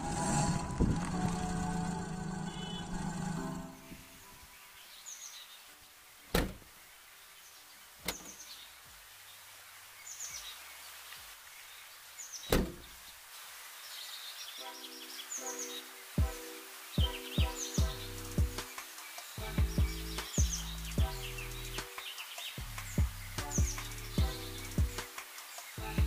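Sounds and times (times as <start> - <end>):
birds chirping: 0.1 - 26.0
car door clunking: 6.3 - 6.6, 8.0 - 8.3, 12.5 - 12.8.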